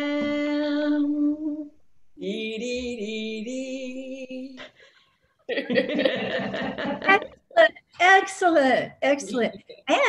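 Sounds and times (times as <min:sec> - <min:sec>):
laughter: 0:05.5 - 0:07.4.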